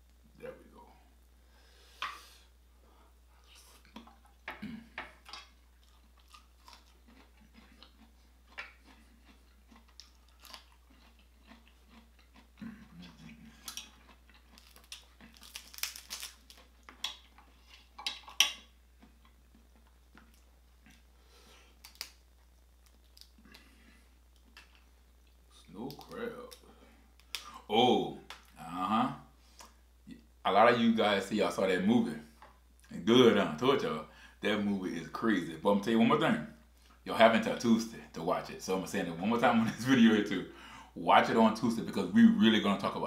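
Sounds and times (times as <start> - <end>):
chewing: 3.4 - 4.6, 5.2 - 21.1
crab shells cracking: 5.2 - 21.0, 21.8 - 23.7, 25.8 - 27.5.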